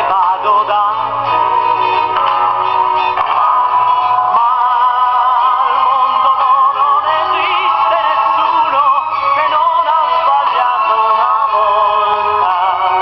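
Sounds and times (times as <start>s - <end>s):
musical accompaniment: 0.0s - 13.0s
person singing with heavy vibrato: 0.0s - 13.0s.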